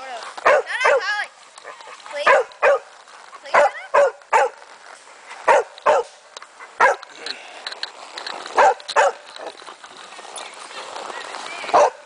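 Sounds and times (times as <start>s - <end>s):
dog barking: 0.4s - 2.9s, 3.5s - 4.6s, 5.4s - 6.1s, 6.8s - 7.0s, 8.6s - 9.2s, 11.7s - 12.0s.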